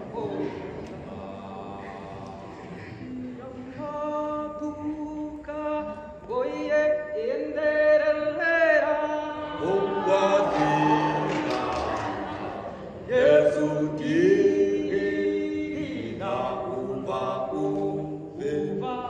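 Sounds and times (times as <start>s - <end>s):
men singing unaccompanied: 0.0s - 19.0s.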